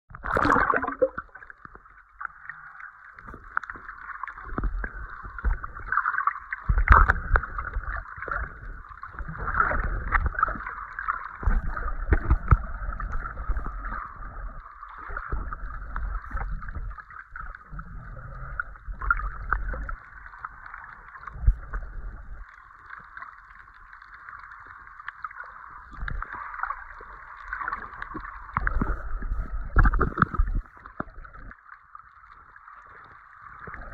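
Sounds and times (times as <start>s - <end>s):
water sloshing: 0.1s - 17.8s
muffled underwater hiss: 0.4s - 31.6s.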